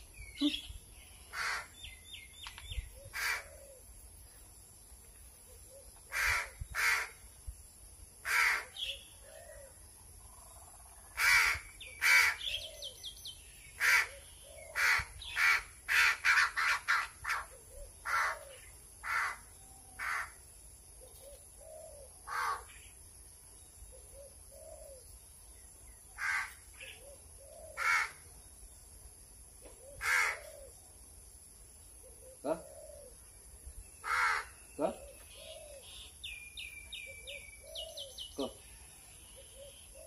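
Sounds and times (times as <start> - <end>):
crow cawing: 1.3 - 1.8, 3.1 - 3.8, 6.1 - 7.2, 8.2 - 8.7, 11.2 - 12.4, 18.0 - 20.4, 22.3 - 22.7, 26.2 - 26.6, 27.8 - 28.2, 30.0 - 30.7, 34.0 - 34.6.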